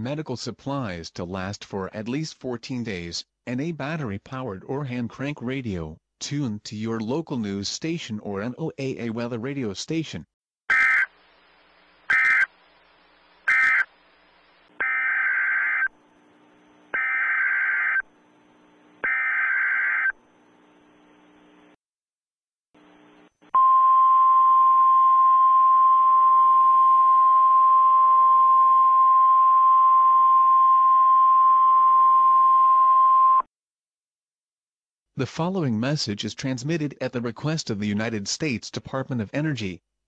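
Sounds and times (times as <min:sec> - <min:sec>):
screeching data bursts: 0:10.7 - 0:11.1, 0:12.1 - 0:12.5, 0:13.4 - 0:13.9, 0:14.8 - 0:15.9, 0:17.0 - 0:18.1, 0:19.0 - 0:20.2
faint static hiss: 0:10.9 - 0:14.8, 0:15.6 - 0:17.0, 0:17.9 - 0:19.1, 0:20.0 - 0:21.8, 0:22.8 - 0:23.5.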